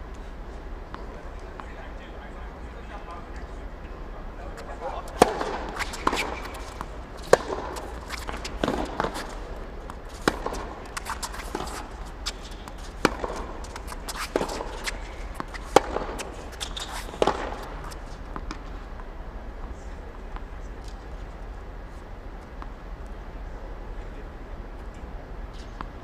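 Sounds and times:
low steady hum: 0:00.0 - 0:26.0
tennis balls struck by rackets: 0:04.5 - 0:19.1.

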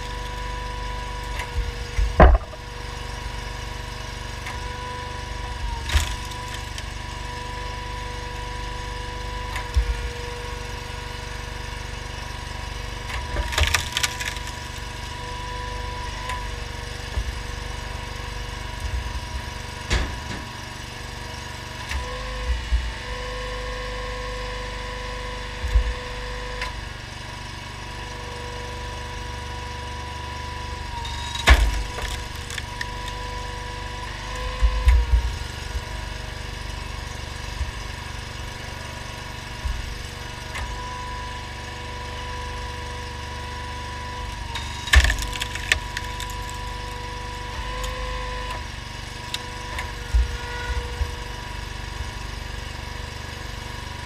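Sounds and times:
engine running steadily: 0:00.0 - 0:54.0
logs cracking and splitting: 0:00.9 - 0:04.4, 0:05.9 - 0:08.9, 0:09.5 - 0:23.3, 0:30.7 - 0:53.2
wood knocking: 0:02.0 - 0:02.7.

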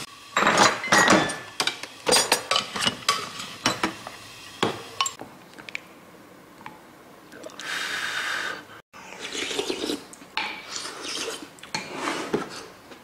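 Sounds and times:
person slurping soup: 0:07.4 - 0:12.7
wooden spoon scraping pot: 0:10.7 - 0:12.8.

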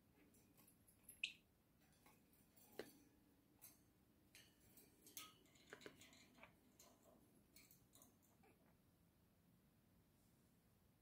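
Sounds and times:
bird pecking and climbing in cage: 0:01.8 - 0:08.8.

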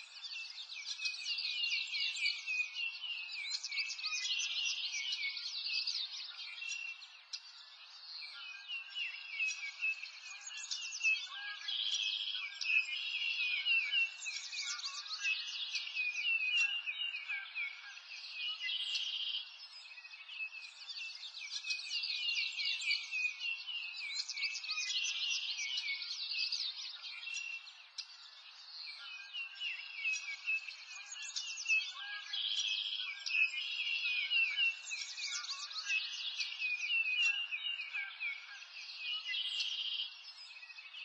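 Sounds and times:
songbirds chirping and trilling: 0:00.0 - 0:41.0.

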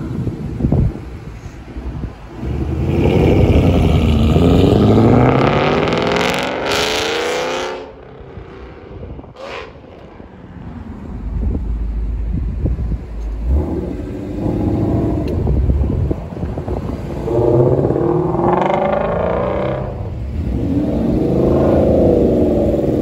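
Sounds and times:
car engine rumbling low: 0:00.0 - 0:23.0
car engine accelerating hard: 0:02.4 - 0:23.0.

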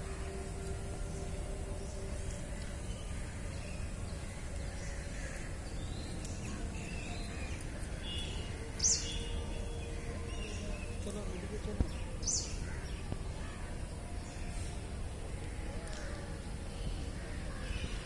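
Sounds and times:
low outdoor rumble: 0:00.0 - 0:18.0.

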